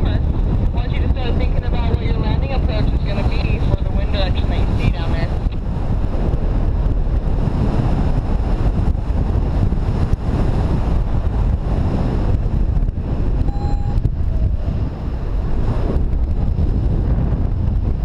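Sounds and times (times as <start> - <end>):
wind rushing over microphone: 0.0 - 18.0
short beep: 13.4 - 14.5.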